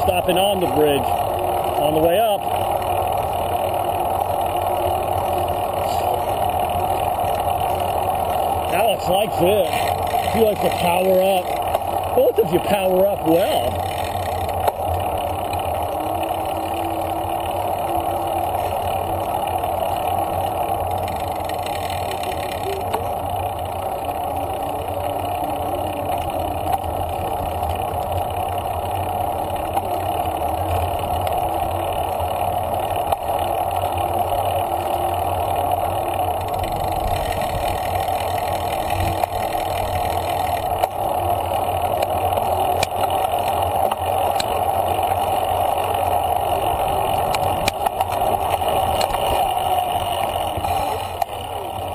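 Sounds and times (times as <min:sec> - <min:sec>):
bicycle tyre and drivetrain noise: 0:00.0 - 0:51.9.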